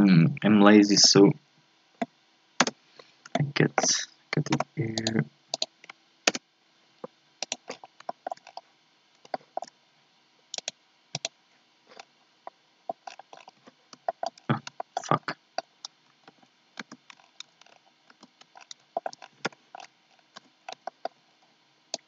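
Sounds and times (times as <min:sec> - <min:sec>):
computer mouse clicks: 0:04.5 - 0:05.7, 0:07.4 - 0:08.6, 0:10.5 - 0:11.4, 0:16.8 - 0:21.2.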